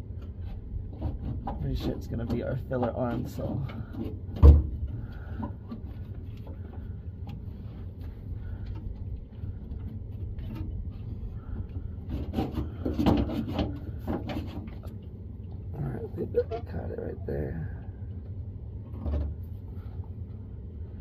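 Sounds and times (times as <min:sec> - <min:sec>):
steady low rumble: 0:00.0 - 0:21.0
metal knocks and scraping: 0:00.4 - 0:06.9, 0:09.0 - 0:15.0, 0:18.8 - 0:19.8.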